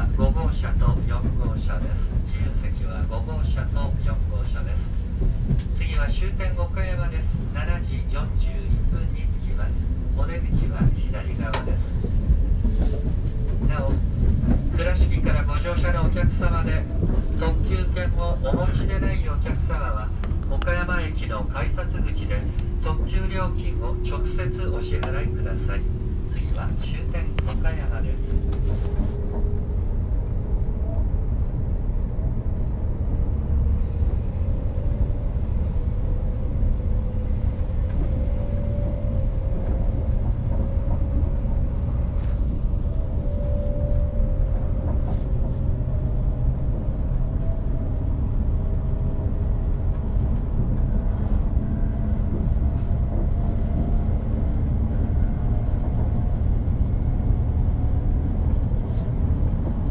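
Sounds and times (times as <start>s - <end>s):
train wheels rumbling on rail: 0.0s - 59.9s.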